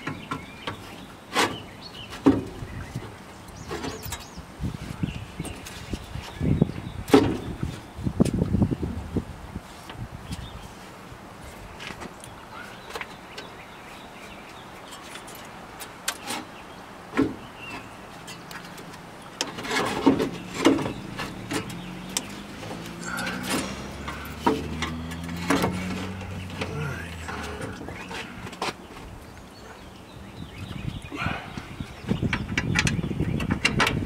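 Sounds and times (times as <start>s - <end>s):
metal knocks and clunks: 19.4s - 26.8s
low engine drone: 20.2s - 28.6s.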